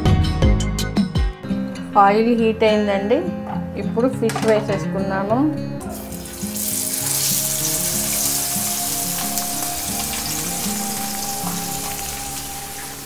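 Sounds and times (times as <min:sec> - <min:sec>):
fish sizzling in hot oil: 0:05.9 - 0:13.0.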